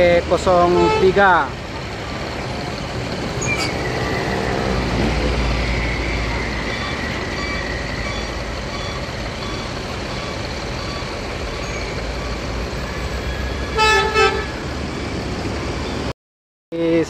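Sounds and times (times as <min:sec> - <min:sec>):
bus diesel engine running: 0:00.0 - 0:16.1
short horn toots: 0:13.8 - 0:14.6.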